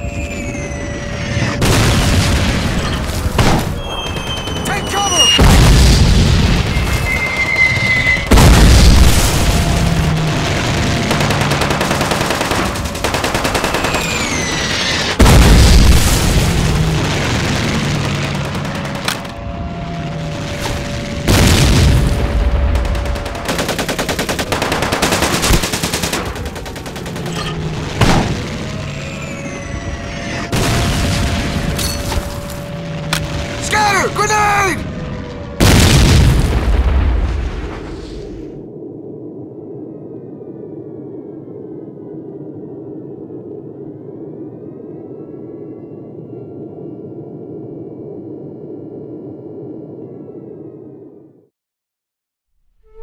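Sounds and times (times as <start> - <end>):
falling whistles: 3.8 - 5.5, 6.6 - 8.3
heavy booms: 5.3 - 11.0, 34.7 - 38.5
rapid machine-gun fire: 8.4 - 14.3, 22.6 - 28.7.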